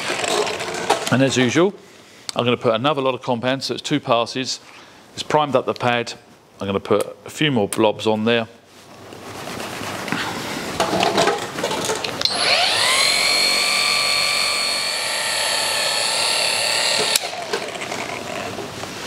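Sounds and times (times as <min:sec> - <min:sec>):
polisher motor whine: 0:12.3 - 0:18.6.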